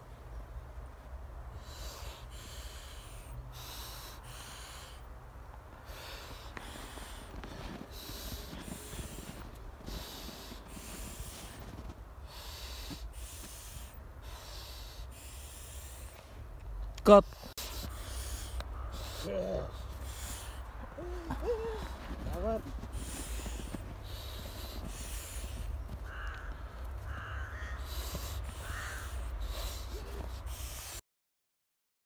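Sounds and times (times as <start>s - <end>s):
man breathing hard: 1.5s - 16.4s, 17.4s - 31.0s.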